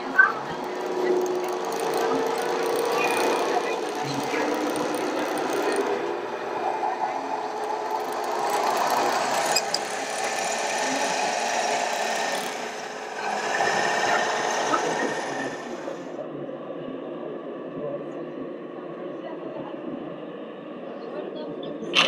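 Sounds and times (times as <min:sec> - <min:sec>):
toy truck electric motor whirring: 0:00.0 - 0:06.0, 0:07.4 - 0:16.1.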